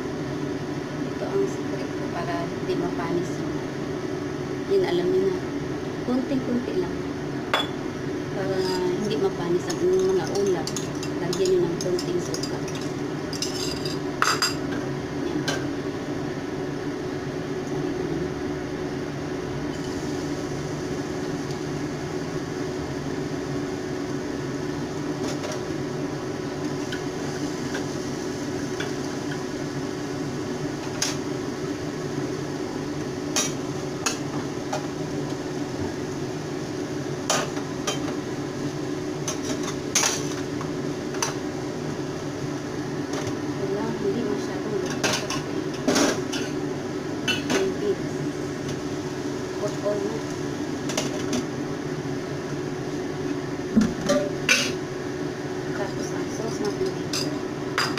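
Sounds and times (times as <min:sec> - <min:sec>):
steady low hum: 0:00.0 - 0:57.9
utensils clinking on pans: 0:09.9 - 0:14.6.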